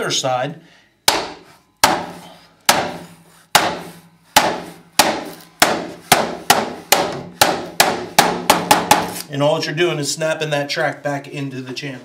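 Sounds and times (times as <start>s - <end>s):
hammer knocking on wood: 1.1s - 3.0s, 3.6s - 9.1s.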